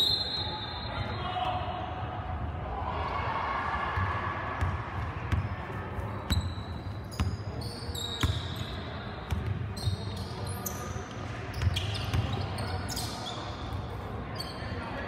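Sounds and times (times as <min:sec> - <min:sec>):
sneakers squeaking: 0:04.6 - 0:15.0.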